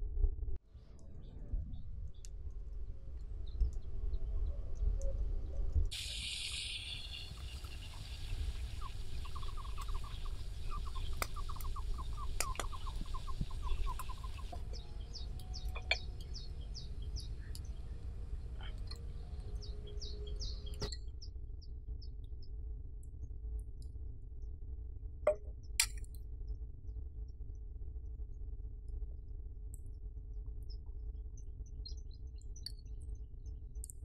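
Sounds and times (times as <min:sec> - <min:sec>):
low steady rumble: 0:00.0 - 0:34.0
birds chirping: 0:05.9 - 0:21.0.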